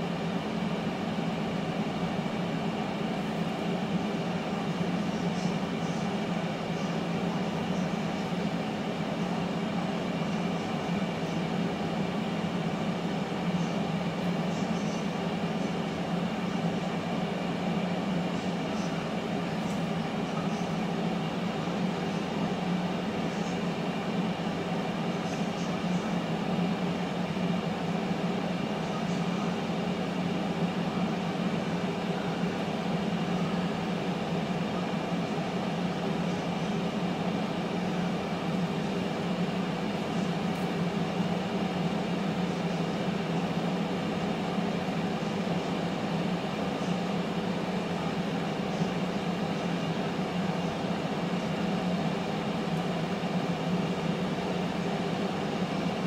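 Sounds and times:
air fryer fan humming: 0.0 - 56.0.

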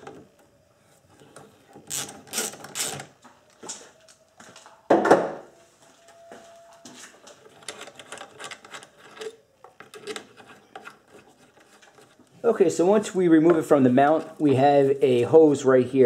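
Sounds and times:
ratchet wrench clicking: 1.9 - 3.1.

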